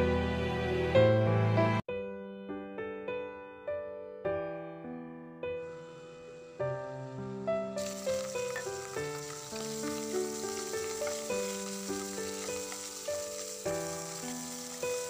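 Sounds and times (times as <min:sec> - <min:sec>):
piano music: 0:00.0 - 0:15.0
prawns sizzling in oil: 0:05.8 - 0:15.0.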